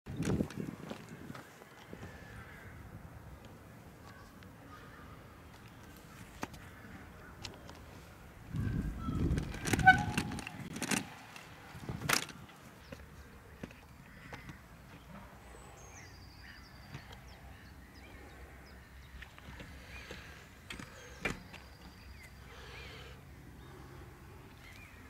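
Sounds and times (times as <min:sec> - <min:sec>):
scooter wheels rolling: 0:07.4 - 0:13.0.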